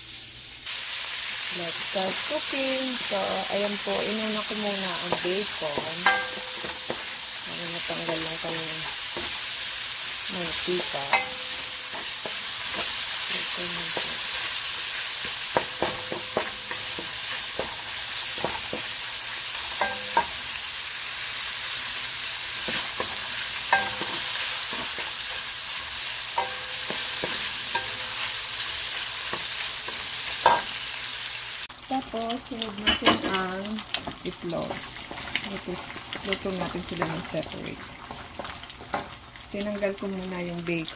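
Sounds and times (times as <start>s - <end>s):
bacon sizzling: 0.0s - 40.9s
spatula scraping and knocking pan: 4.3s - 9.5s, 10.5s - 20.5s, 22.5s - 30.8s, 32.8s - 39.2s.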